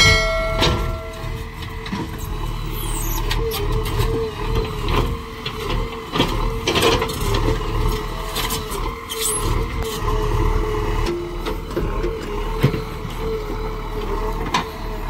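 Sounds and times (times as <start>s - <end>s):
metallic knocks: 0.0s - 1.7s
diesel engine rumbling: 0.0s - 15.0s
short high squeals: 2.7s - 3.3s.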